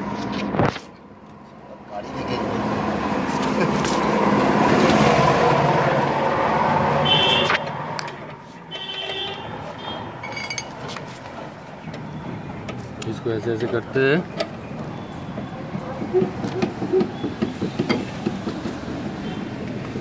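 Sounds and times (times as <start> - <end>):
street background: 0.0 - 20.0
vehicle passing close by: 2.0 - 8.6.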